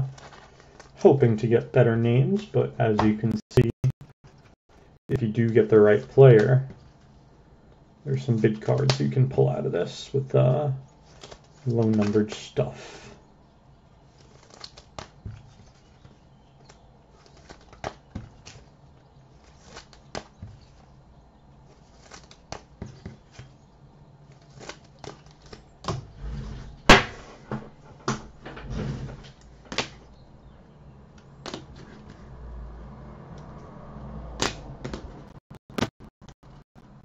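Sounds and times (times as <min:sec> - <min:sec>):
trading cards being handled: 0:11.0 - 0:12.6, 0:14.1 - 0:21.0, 0:21.6 - 0:23.6, 0:24.2 - 0:26.2.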